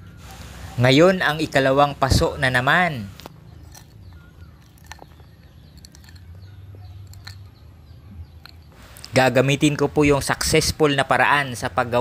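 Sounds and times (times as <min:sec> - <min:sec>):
gravelly potting mix crunching: 0:00.3 - 0:09.4.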